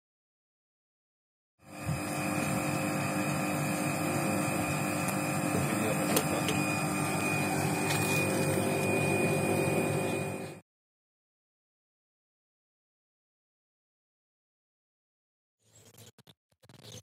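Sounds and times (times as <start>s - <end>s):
air conditioner humming: 1.7s - 10.6s.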